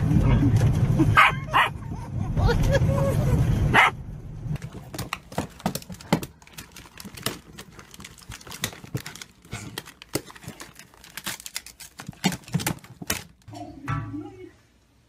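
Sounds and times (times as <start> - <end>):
plastic bag crinkling: 4.6 - 13.5.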